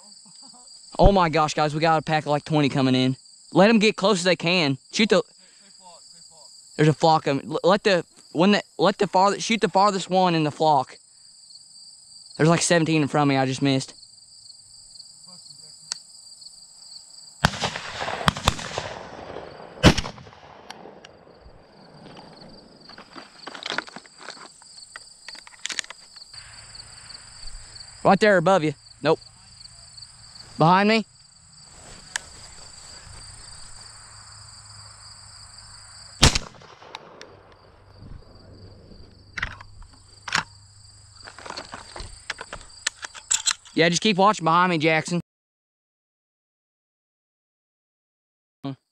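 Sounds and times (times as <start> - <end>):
insects buzzing: 0.0 - 3.8, 4.4 - 9.2, 10.1 - 43.9
shotgun shots: 17.4 - 22.7, 36.2 - 38.3.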